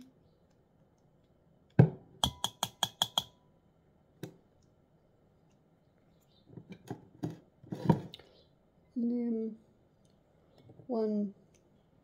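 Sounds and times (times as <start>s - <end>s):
plastic spoon tapping glass bowl: 1.8s - 3.4s.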